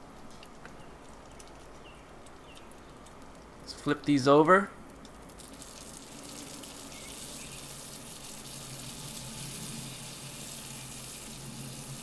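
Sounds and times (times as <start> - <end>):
bacon sizzling on a griddle: 5.4 - 12.0.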